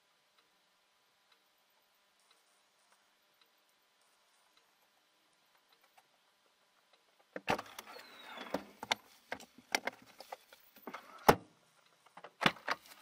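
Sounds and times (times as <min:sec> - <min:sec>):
falling squeak: 0:07.8 - 0:08.7.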